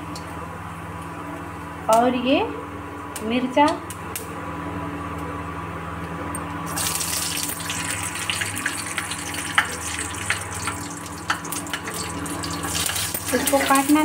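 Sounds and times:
cooktop hum: 0:00.0 - 0:14.0
hot oil sizzling and crackling: 0:06.7 - 0:14.0.

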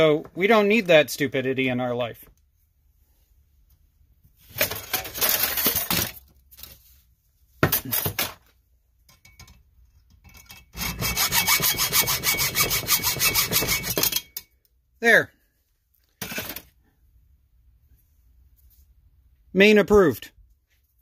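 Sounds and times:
hacksaw cutting metal: 0:10.7 - 0:14.4.

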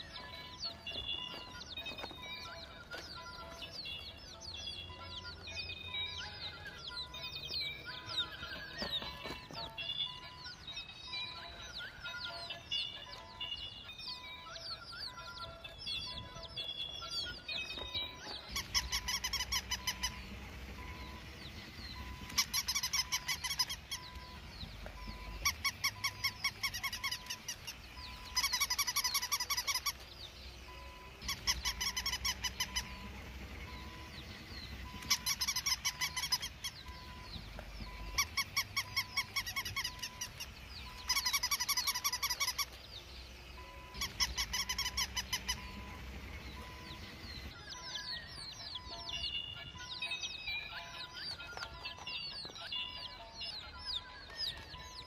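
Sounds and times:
faint repeating beep: 0:00.0 - 0:03.6, 0:19.7 - 0:22.4, 0:24.0 - 0:27.2, 0:32.7 - 0:35.2, 0:36.9 - 0:41.1, 0:45.5 - 0:55.0
pulsing animal call: 0:14.1 - 0:30.0, 0:30.7 - 0:43.0, 0:43.6 - 0:49.2.

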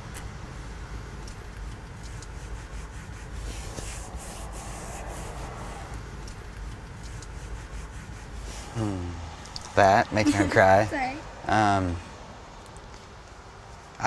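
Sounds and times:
low steady rumble: 0:00.0 - 0:12.4
soft rustling: 0:01.3 - 0:08.7.

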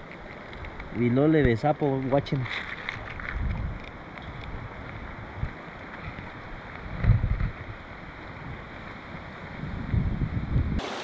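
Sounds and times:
wind buffeting microphone: 0:00.0 - 0:10.8.

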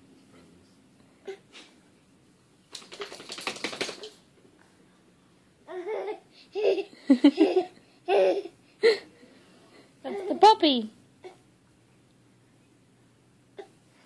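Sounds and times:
baby laughing: 0:05.7 - 0:09.0.

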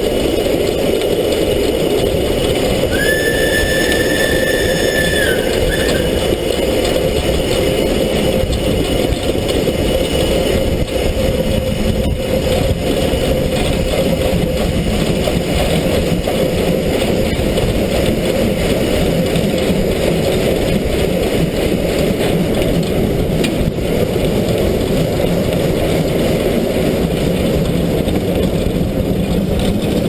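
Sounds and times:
steam locomotive running on rails: 0:00.0 - 0:30.0
steam whistle: 0:02.9 - 0:06.7.

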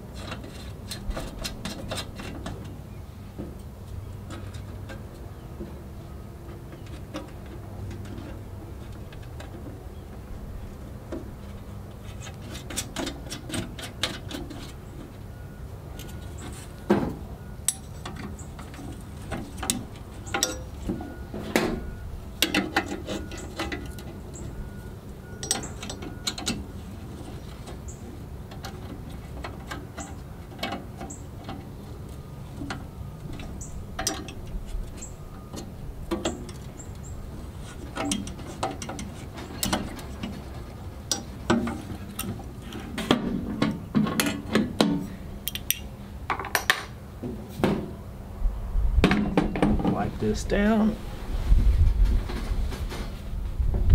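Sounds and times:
metal tools clicking and clinking: 0:17.7 - 0:19.0, 0:19.6 - 0:20.8, 0:22.4 - 0:26.6
metal knocks: 0:49.0 - 0:50.1.

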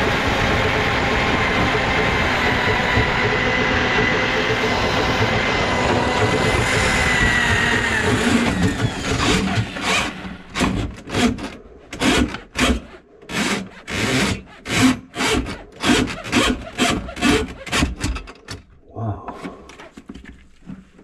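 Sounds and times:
drain snake machine motor whine: 0:00.0 - 0:10.6
steel cable scraping and rubbing: 0:06.8 - 0:18.0.

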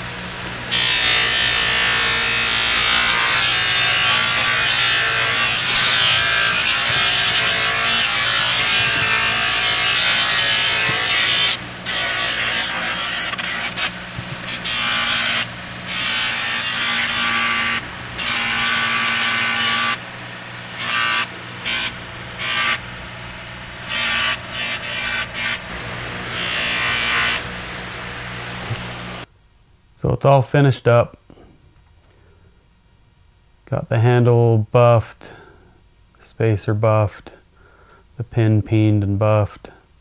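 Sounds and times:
buffer motor humming: 0:00.0 - 0:29.3
knife rubbing on buffing wheel: 0:02.4 - 0:20.1, 0:20.8 - 0:22.9, 0:23.9 - 0:27.5.

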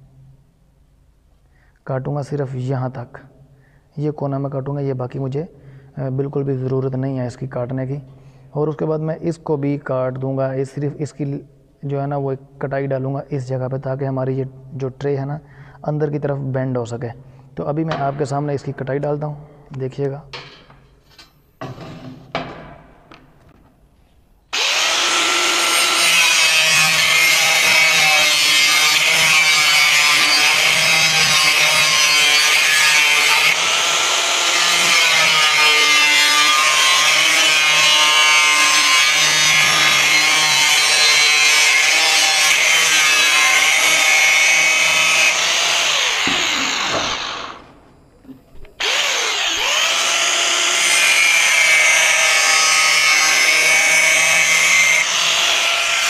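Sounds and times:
angle grinder cutting steel: 0:24.5 - 0:47.7, 0:48.8 - 0:56.0.

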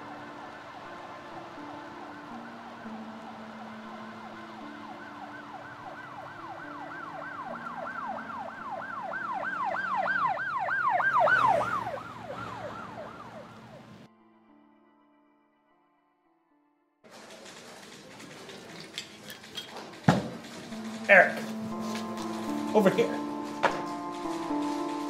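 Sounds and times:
siren yelping: 0:00.0 - 0:14.1.

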